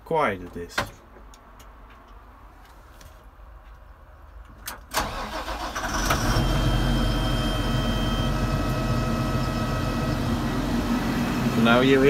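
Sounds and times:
diesel engine starting and idling: 0:04.9 - 0:12.0
faint high whine: 0:06.3 - 0:12.0.

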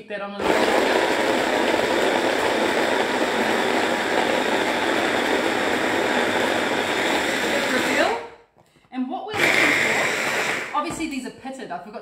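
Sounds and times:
blender running: 0:00.4 - 0:08.3, 0:09.3 - 0:10.9.

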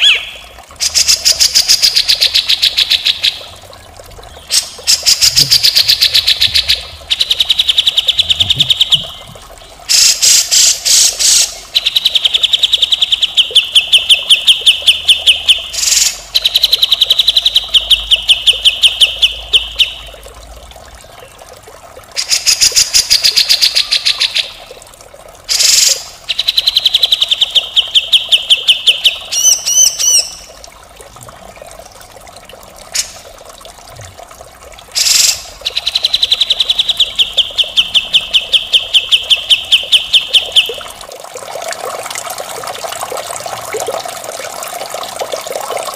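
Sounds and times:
bird chattering song: 0:00.0 - 0:01.0.

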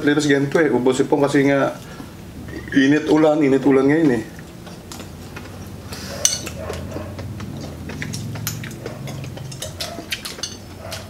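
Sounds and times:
low steady hum: 0:00.0 - 0:11.0
cutlery on ceramic plates: 0:04.7 - 0:06.8, 0:08.0 - 0:11.0.

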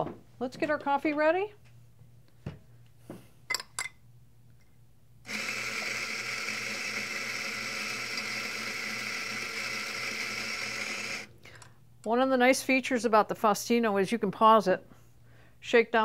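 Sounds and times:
coffee grinder motor grinding: 0:05.3 - 0:11.3.

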